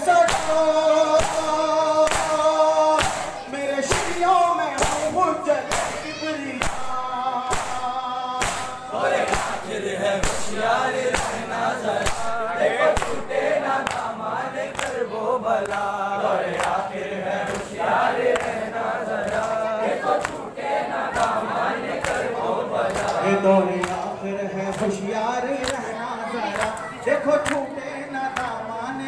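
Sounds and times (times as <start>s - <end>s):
men chanting together: 0.0s - 29.0s
hands slapping chests: 0.2s - 11.4s, 12.0s - 15.0s, 15.6s - 15.9s, 17.4s - 20.4s, 22.0s - 22.3s.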